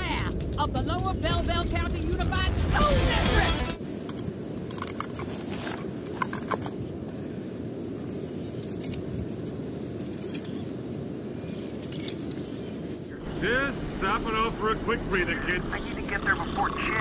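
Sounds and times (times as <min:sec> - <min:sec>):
steady low rumble: 0:00.0 - 0:04.7, 0:13.1 - 0:17.0.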